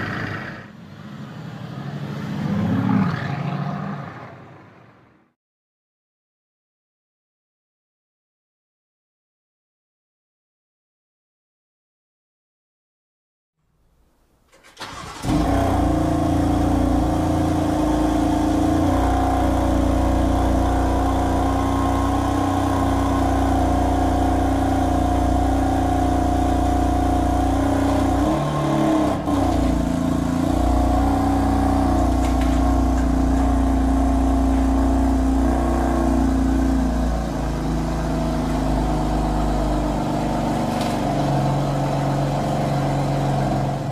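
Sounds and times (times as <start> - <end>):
car engine starting and idling: 14.5 - 43.9.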